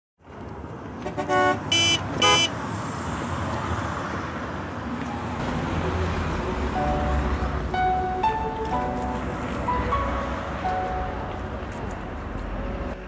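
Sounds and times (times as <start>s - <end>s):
steady traffic noise: 0.2s - 13.0s
car horn toots: 1.0s - 2.6s.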